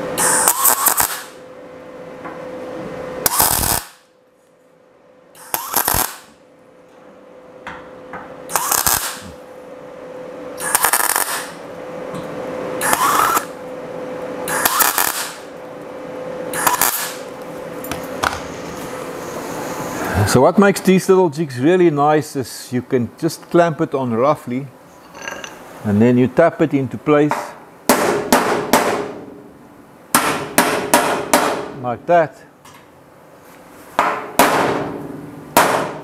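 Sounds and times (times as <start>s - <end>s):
steady welder hum: 0.0s - 32.4s
welder crackling bursts: 0.2s - 1.4s, 3.2s - 4.1s, 5.4s - 6.4s, 8.5s - 9.4s, 10.6s - 11.6s, 12.8s - 13.6s, 14.5s - 15.5s, 16.5s - 17.3s.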